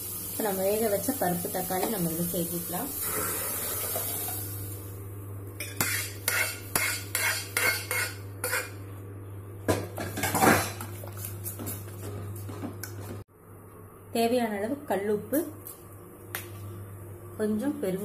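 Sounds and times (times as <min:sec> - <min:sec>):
steady low hum: 0:03.6 - 0:18.0
spoon scraping and stirring: 0:05.6 - 0:08.8, 0:10.7 - 0:13.1.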